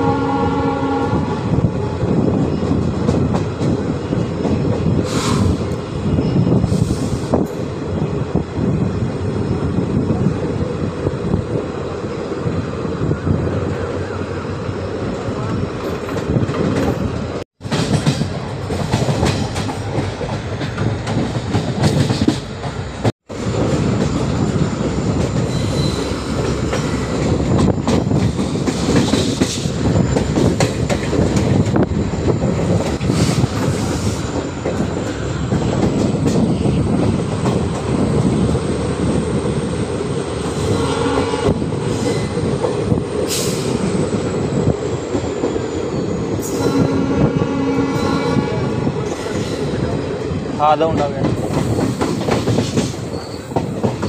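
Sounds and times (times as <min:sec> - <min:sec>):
train wheels rumbling on rails: 0:00.0 - 0:54.0
faint high wheel squeal: 0:25.5 - 0:26.4, 0:53.0 - 0:54.0.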